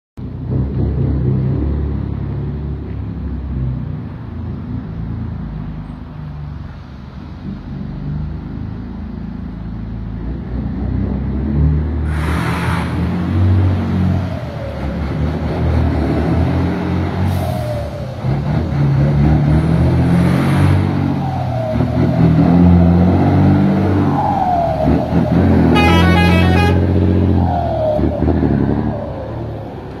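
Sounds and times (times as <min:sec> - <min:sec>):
diesel truck engine revving: 0:00.2 - 0:05.8, 0:07.0 - 0:30.0
air hissing: 0:12.1 - 0:13.1.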